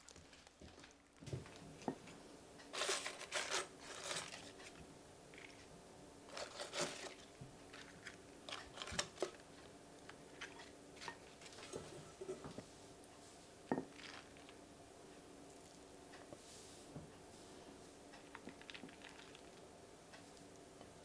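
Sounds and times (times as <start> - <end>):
lettuce leaves rustling: 2.8 - 4.8, 6.3 - 9.4.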